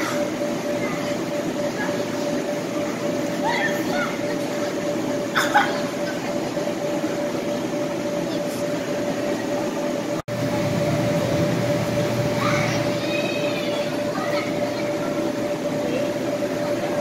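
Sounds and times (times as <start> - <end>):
faint children's voices: 0.0 - 9.8, 12.2 - 17.0
blower fans droning: 0.0 - 17.0.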